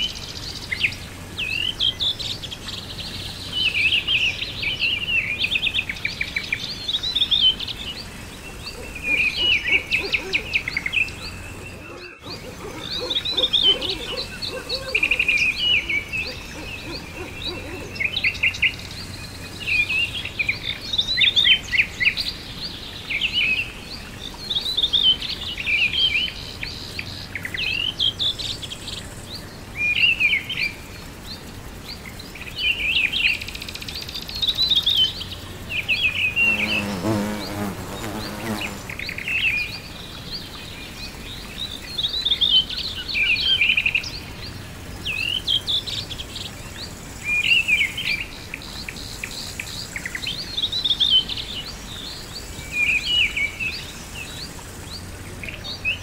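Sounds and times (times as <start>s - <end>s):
songbirds chirping and trilling: 0.0s - 56.0s
low pulsing bird call: 8.6s - 18.1s.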